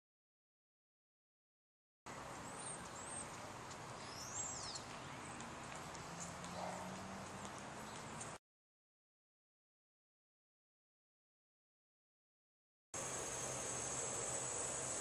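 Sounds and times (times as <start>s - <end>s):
bird chirps: 2.4s - 5.5s
steady hiss: 13.0s - 15.0s.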